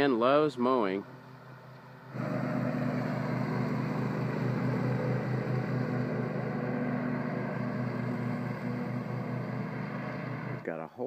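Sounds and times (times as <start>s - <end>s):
riding lawn mower engine running: 0.6s - 10.7s.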